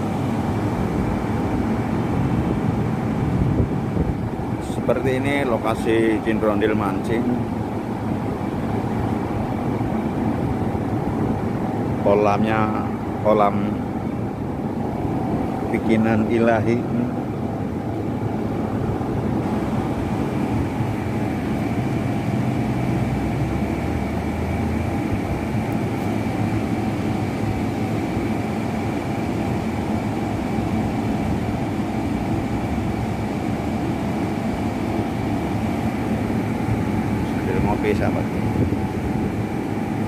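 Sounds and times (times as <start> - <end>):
factory machinery rumble: 0.0 - 40.0
high machine whine: 0.0 - 40.0.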